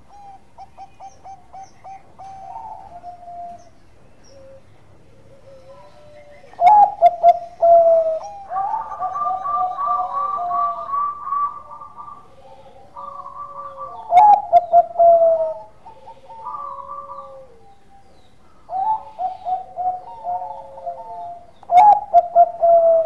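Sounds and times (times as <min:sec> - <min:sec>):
dove cooing: 0:00.0 - 0:23.0.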